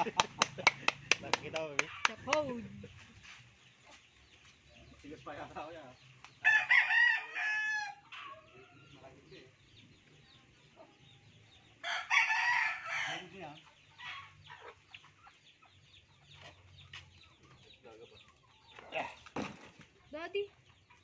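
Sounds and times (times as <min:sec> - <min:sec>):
chickens clucking: 0:00.0 - 0:06.4, 0:07.9 - 0:12.0, 0:13.1 - 0:21.0
rooster crowing: 0:06.4 - 0:08.0, 0:11.8 - 0:13.3.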